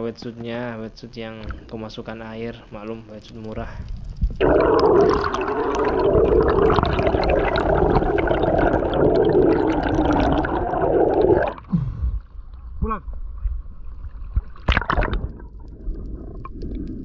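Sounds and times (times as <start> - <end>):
small crackles: 0.2 - 9.0, 12.5 - 17.0
muffled underwater rushing: 3.6 - 11.7, 13.2 - 17.0.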